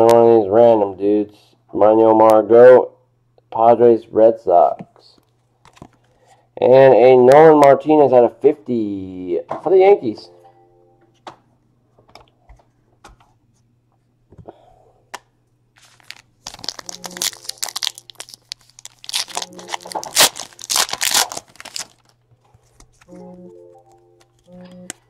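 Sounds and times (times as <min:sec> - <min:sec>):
foil wrapper crinkling and tearing: 0:15.8 - 0:23.1.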